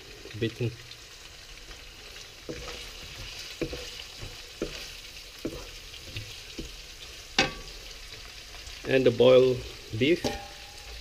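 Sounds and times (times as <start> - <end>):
food sizzling in a wok: 0.0 - 11.0
wooden spatula knocking a pan: 2.4 - 7.8, 10.2 - 10.7.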